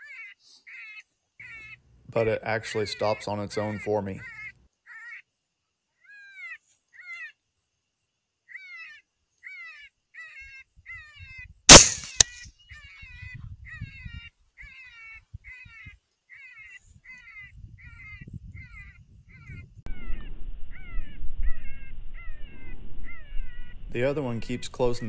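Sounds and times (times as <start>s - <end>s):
rifle shot: 11.7s - 12.5s
wind rumble on microphone: 13.0s - 14.3s, 17.4s - 25.0s.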